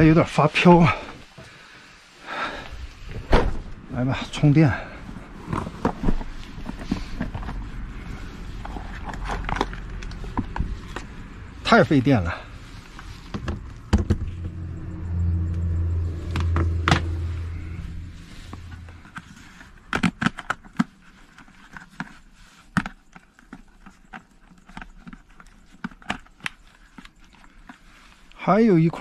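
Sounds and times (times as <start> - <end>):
steady low hum: 2.6 - 19.9.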